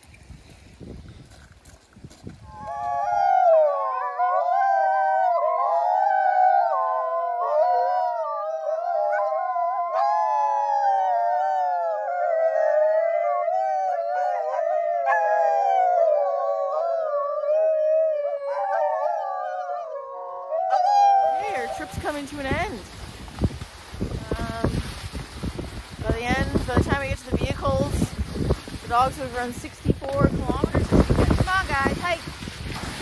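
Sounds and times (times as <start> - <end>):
sled dogs howling: 2.5 - 22.8.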